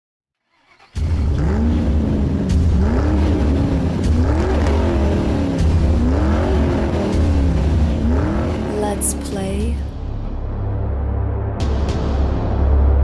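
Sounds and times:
car engine revving: 1.0 - 8.8.

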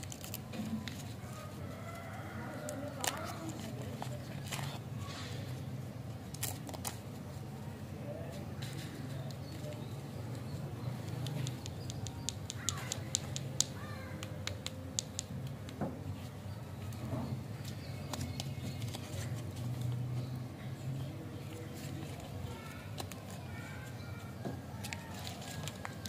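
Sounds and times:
wrapper crinkling and crackling: 0.0 - 1.3, 2.6 - 4.8, 24.7 - 26.0.

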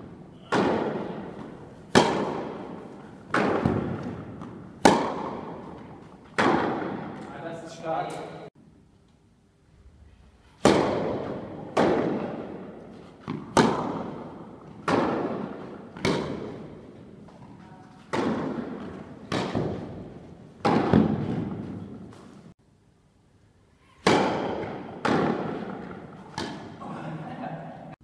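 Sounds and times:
racket striking tennis ball: 0.0 - 7.3, 10.6 - 22.5, 24.0 - 26.8
tennis ball bouncing: 0.1 - 7.3, 10.6 - 22.5, 24.0 - 26.8.

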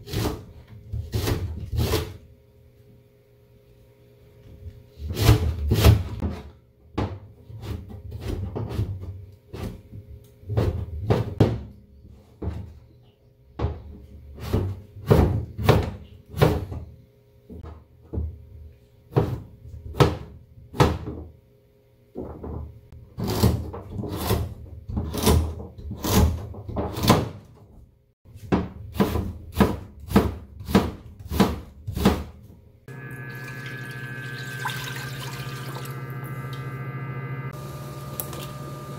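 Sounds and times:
knife chopping on plastic board: 28.4 - 32.4
steady hum: 32.9 - 38.9.

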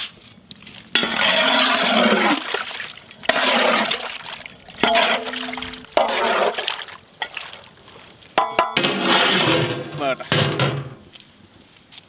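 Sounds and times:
ladle stirring sloshing gravy: 1.0 - 8.1.

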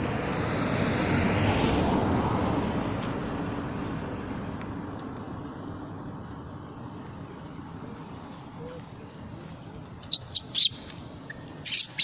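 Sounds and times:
baby monkey shrill screams: 10.1 - 10.8, 11.6 - 12.0.

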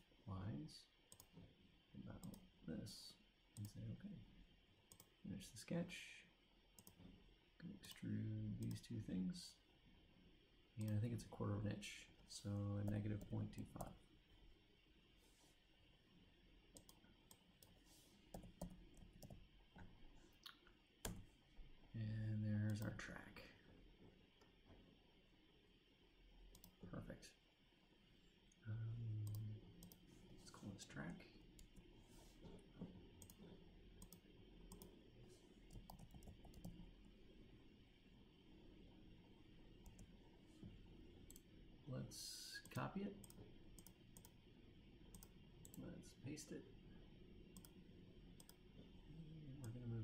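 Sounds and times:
computer mouse clicks: 1.1 - 1.4, 2.2 - 2.4, 4.9 - 5.1, 6.8 - 7.1, 16.7 - 19.4, 22.7 - 22.9, 26.5 - 26.8, 29.2 - 30.0, 33.2 - 34.9, 35.7 - 36.9, 39.8 - 40.1, 41.3 - 41.5, 42.6 - 44.4, 45.1 - 45.8, 47.6 - 47.8, 48.4 - 48.6.

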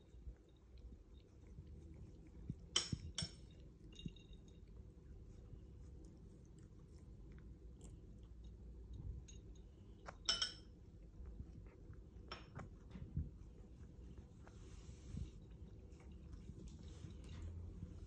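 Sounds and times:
cat licking fur: 0.0 - 10.2, 10.8 - 18.0.

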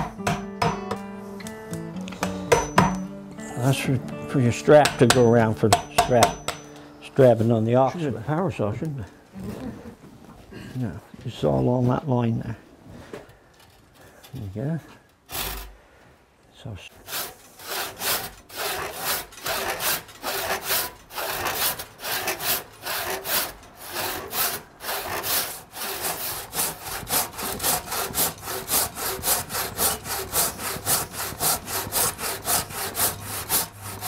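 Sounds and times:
handsaw cutting wood: 15.3 - 15.7, 17.0 - 34.0.

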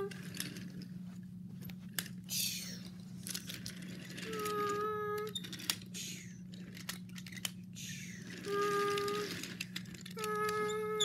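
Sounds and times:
wooden toy train clacking on track: 3.2 - 11.0.

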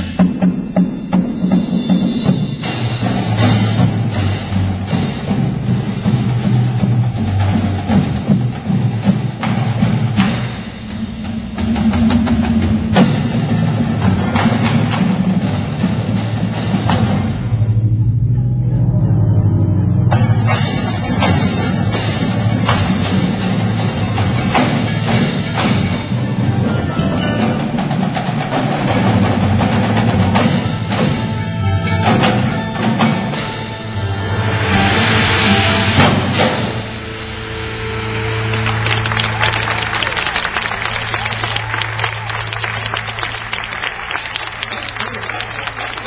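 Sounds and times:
marching percussion ensemble: 0.0 - 18.4, 20.0 - 46.0
drumline playing: 0.0 - 46.0
held low notes: 2.9 - 44.1
mallet keyboards: 18.0 - 39.8
sharp accented drum hits: 34.9 - 37.3.

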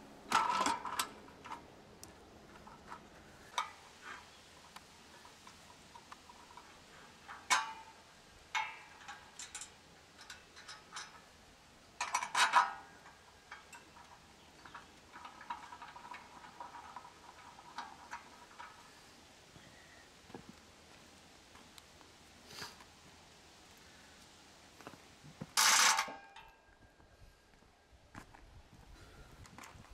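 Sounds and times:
light metal rattle: 0.3 - 1.7, 2.4 - 19.2
metal parts clinking and knocking: 5.2 - 11.3, 12.0 - 18.9.

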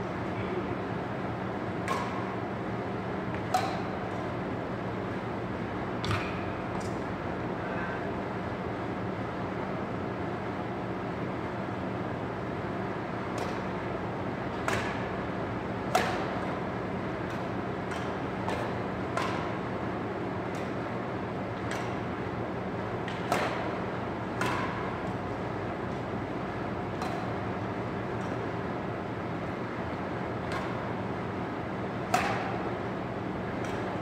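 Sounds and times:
steady background hum: 0.0 - 34.0
rackets striking shuttlecock: 1.8 - 2.4, 3.3 - 4.3, 6.0 - 7.1, 13.3 - 13.7, 14.6 - 15.2, 15.9 - 16.6, 17.2 - 19.7, 20.4 - 20.9, 21.6 - 22.1, 23.0 - 25.3, 26.9 - 28.4, 30.4 - 30.9, 32.0 - 32.8, 33.5 - 34.0.

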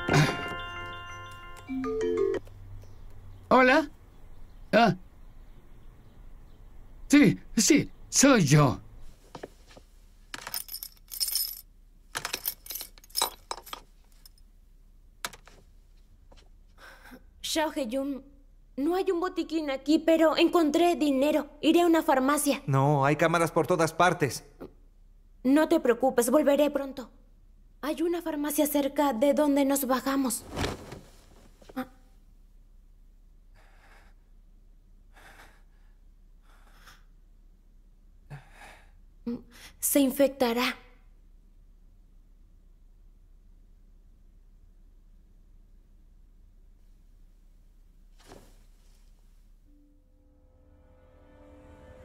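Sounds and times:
heavy breathing gasps: 35.1 - 37.2.

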